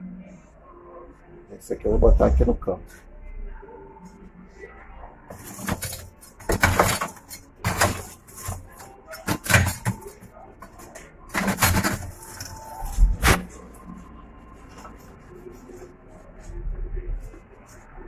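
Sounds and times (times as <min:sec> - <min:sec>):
charcoal clattering and scraping: 0:05.3 - 0:15.8.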